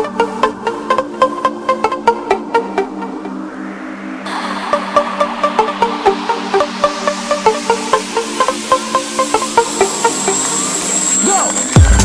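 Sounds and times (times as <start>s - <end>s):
electronic dance music: 0.0s - 12.0s
heavy bass and kick drum: 11.7s - 12.0s.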